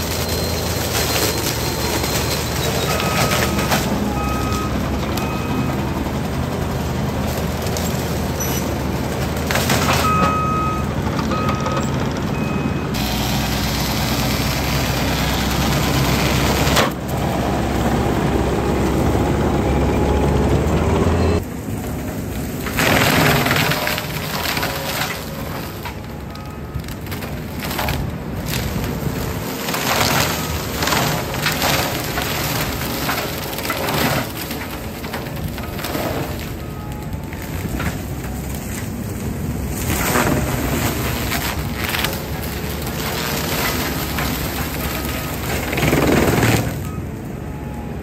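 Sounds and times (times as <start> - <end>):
wood being shredded: 0.0 - 47.3
mulcher grinding through brush: 0.0 - 47.5
diesel engine running hard: 0.0 - 48.0
short beeps: 10.0 - 13.0.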